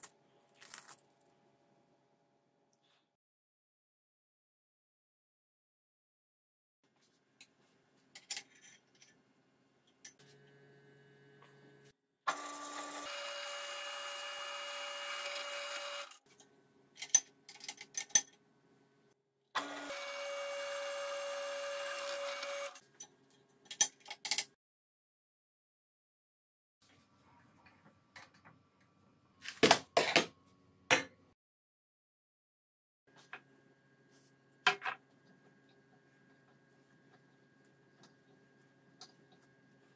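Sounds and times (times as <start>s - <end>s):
drill press motor whirring: 12.3s - 16.2s, 19.6s - 22.8s.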